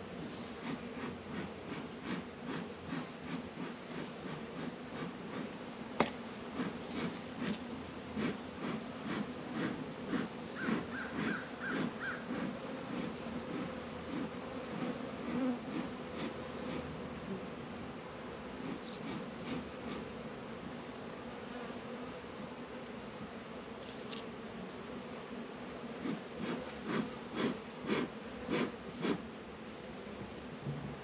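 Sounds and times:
bee smoker bellows puffs: 0.0s - 17.4s, 18.5s - 20.3s, 25.9s - 29.4s
bees buzzing: 0.0s - 31.0s.

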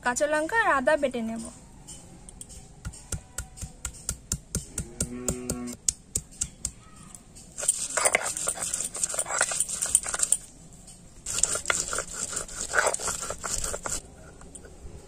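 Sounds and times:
stone knocking crushing garlic: 2.8s - 6.8s
stone scraping on stone: 7.4s - 15.0s.

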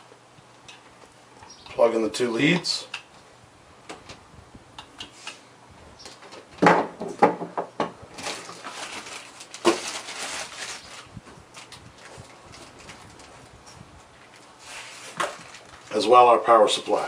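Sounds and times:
rustling and scraping: 5.0s - 16.2s.

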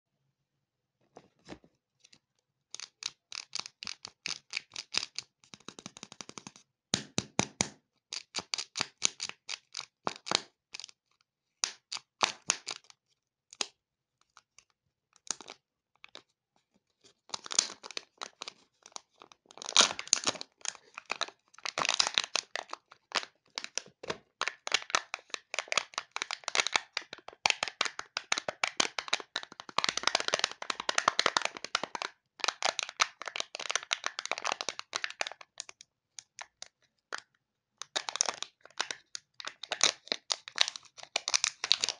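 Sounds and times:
plastic wrapper crackling: 17.3s - 35.7s, 37.8s - 41.9s.

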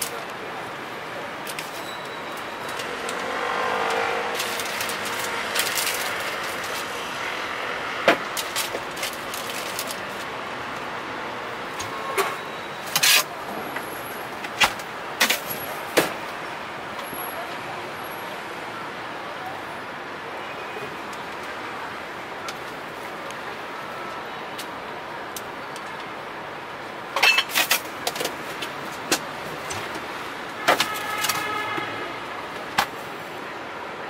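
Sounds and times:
traffic hum: 0.0s - 34.0s
vehicles passing: 0.0s - 34.0s.

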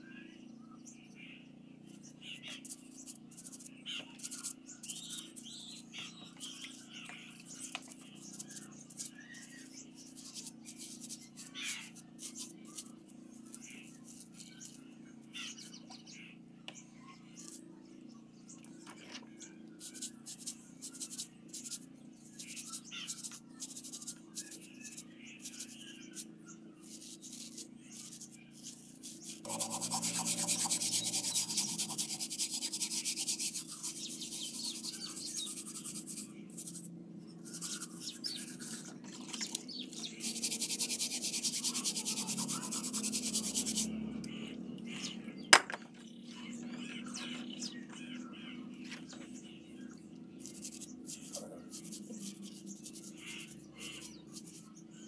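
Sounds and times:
bristle brush scrubbing plastic: 2.6s - 5.8s, 6.4s - 14.8s, 19.8s - 44.0s, 50.4s - 54.7s.

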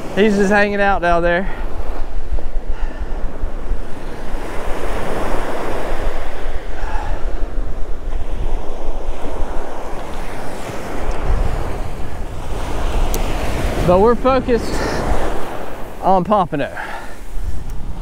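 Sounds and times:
ocean surf breaking: 0.0s - 18.0s
wind buffeting microphone: 0.0s - 18.0s.

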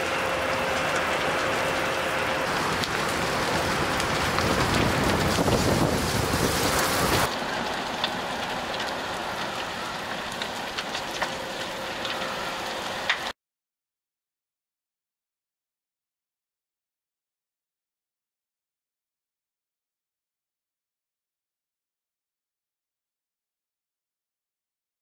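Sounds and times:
flames rushing: 0.0s - 13.3s
fire crackling and popping: 0.0s - 13.4s.

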